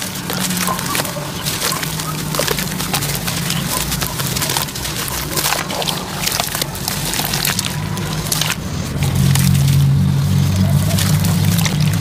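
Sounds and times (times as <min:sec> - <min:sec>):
wet cement crunching under water: 0:00.0 - 0:12.0.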